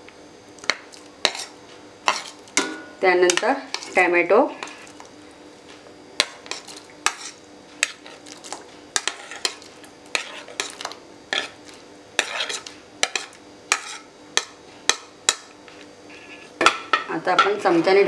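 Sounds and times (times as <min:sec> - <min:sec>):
utensil scraping a plate: 0:01.2 - 0:02.4, 0:06.4 - 0:08.4, 0:09.0 - 0:14.1, 0:16.1 - 0:16.6.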